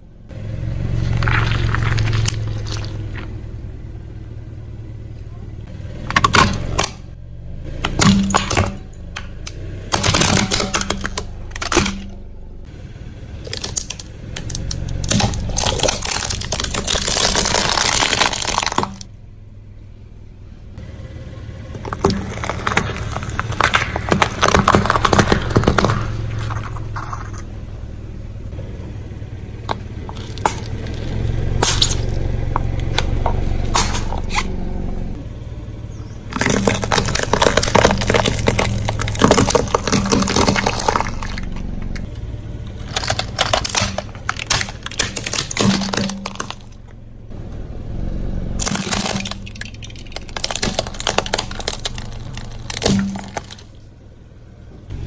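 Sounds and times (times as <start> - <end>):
car engine hum: 0.0 - 55.0
tyre crushing brittle objects: 0.8 - 3.4, 6.0 - 7.0, 7.8 - 12.2, 13.3 - 19.2, 21.7 - 27.5, 29.7 - 34.6, 36.0 - 47.0, 48.6 - 53.8.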